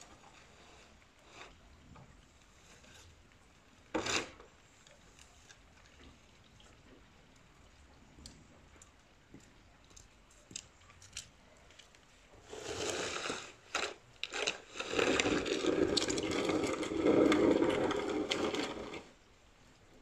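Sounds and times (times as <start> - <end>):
shovel scraping on pavement: 12.5 - 19.0.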